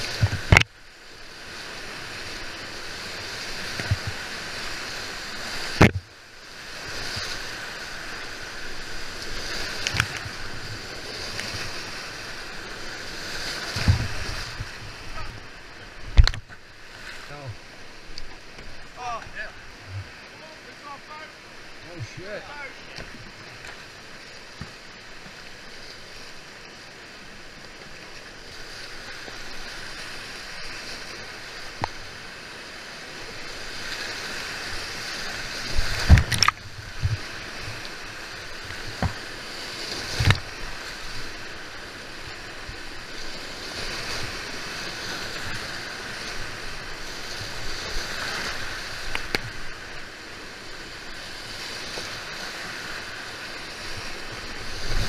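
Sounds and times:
whitewater rapids rushing: 0:00.0 - 0:55.0
kayak thumps and splashes: 0:00.1 - 0:00.8, 0:03.5 - 0:04.7, 0:05.5 - 0:06.1, 0:13.4 - 0:17.0, 0:35.7 - 0:41.6.

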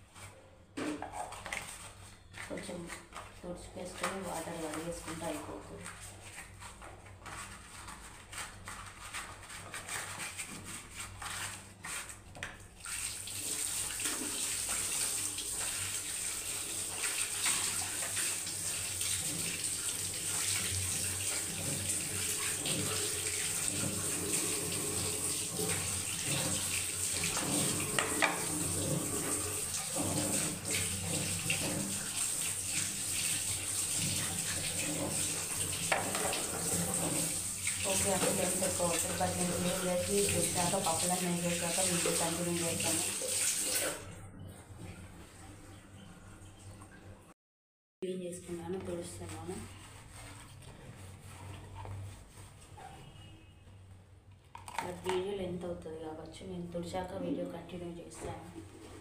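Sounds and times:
hands washing plastic container: 0:00.1 - 0:44.2, 0:48.5 - 0:52.8, 0:54.4 - 0:55.6, 0:58.0 - 0:59.0
water running from a tap: 0:08.0 - 0:44.2.

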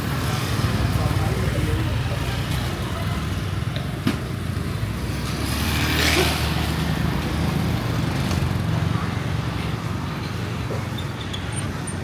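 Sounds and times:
vehicle engines running: 0:00.0 - 0:12.0.

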